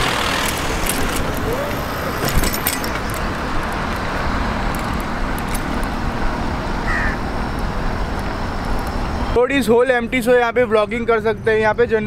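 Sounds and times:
light clicks and rattles: 0.4 - 6.0.

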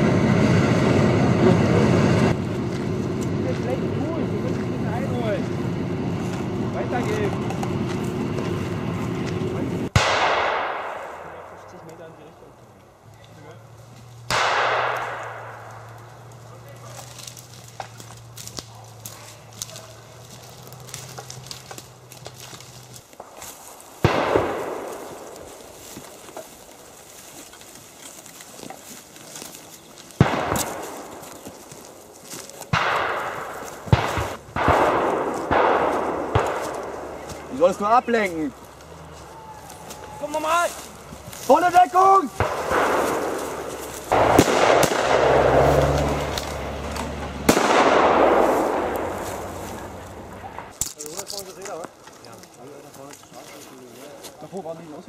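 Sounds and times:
pyrotechnic explosions: 0.0 - 12.1, 14.3 - 16.3, 20.5 - 27.2, 30.1 - 32.0, 32.6 - 38.6, 42.3 - 50.8
echoing gunshots: 9.9 - 11.9, 14.3 - 16.1, 23.2 - 26.2, 30.2 - 31.6, 32.7 - 37.6, 42.3 - 46.2, 47.4 - 50.0.

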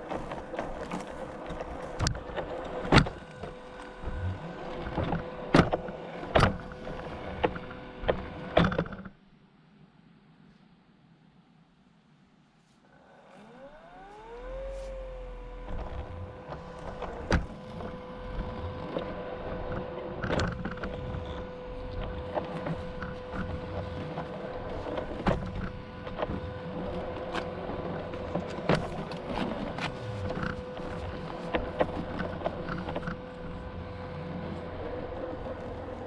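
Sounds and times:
small motor humming: 0.0 - 9.2, 12.9 - 36.0.

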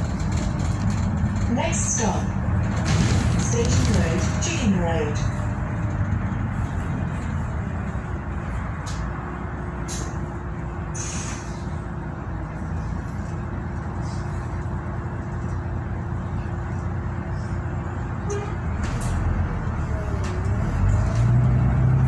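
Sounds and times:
bus engine and road noise: 0.0 - 22.0
short hisses: 10.9 - 11.8.

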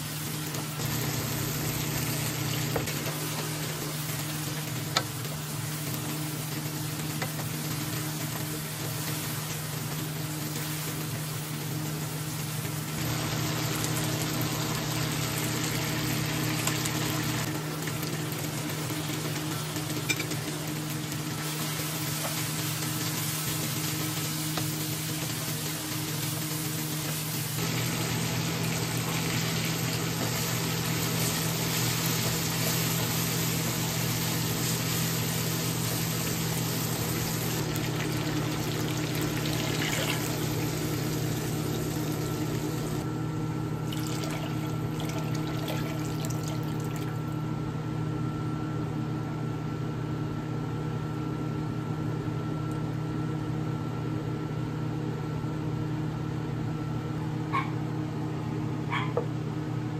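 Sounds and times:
food sizzling in a wok: 0.0 - 43.1
water pouring: 37.5 - 43.0, 43.9 - 47.3.

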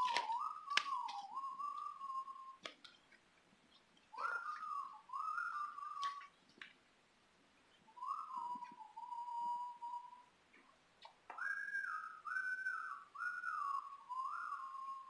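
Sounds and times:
person whistling a tune: 0.0 - 2.7, 8.0 - 10.3, 11.4 - 15.0.

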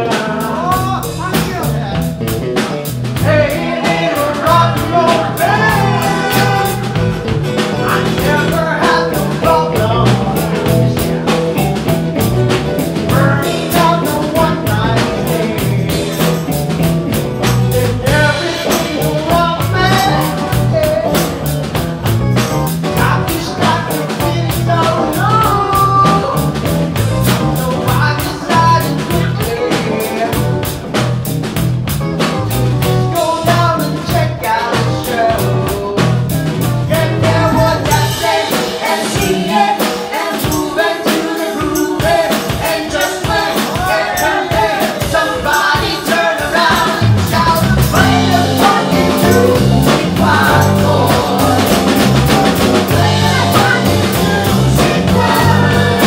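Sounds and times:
man and woman singing: 0.0 - 31.0, 33.0 - 56.0
bass guitar: 0.0 - 56.0
drum kit with cymbal strokes: 0.0 - 56.0
electric guitar: 0.0 - 56.0.

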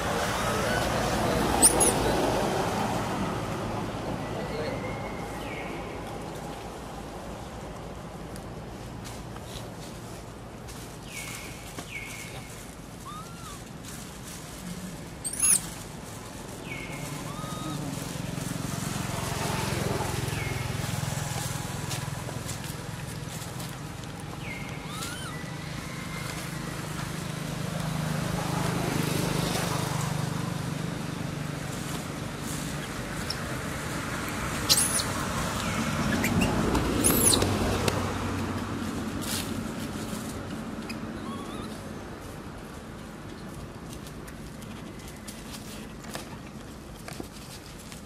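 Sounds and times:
vehicle engine hum: 0.0 - 48.0
bird chirp: 1.6 - 2.0, 15.2 - 15.7, 34.7 - 37.5
high-pitched squeaky calls: 1.6 - 2.1, 13.0 - 13.7, 15.2 - 15.8, 16.8 - 18.0, 24.7 - 25.6, 34.6 - 35.2, 36.0 - 37.5, 40.9 - 41.9.

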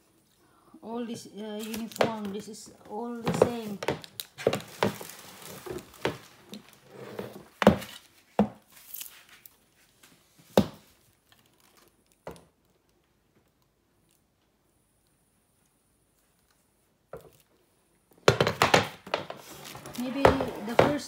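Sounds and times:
plastic wrapping crinkling: 1.6 - 2.4, 3.6 - 6.9, 7.8 - 10.1, 10.9 - 12.2
wooden parts knocking on floor: 18.2 - 21.0.

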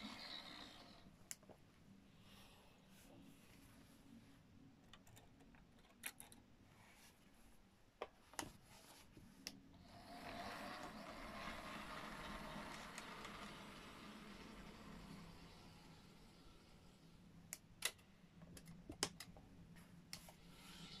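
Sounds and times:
model train motor whirring: 0.0 - 1.0, 9.8 - 17.1.

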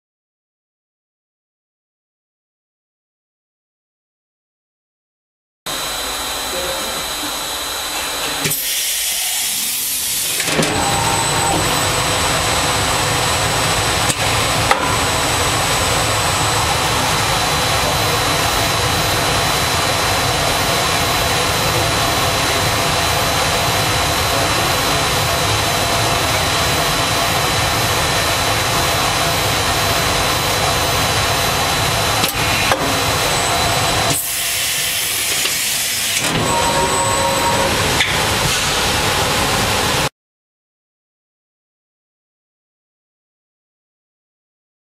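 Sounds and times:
laser cutting machine hissing: 5.7 - 40.1.

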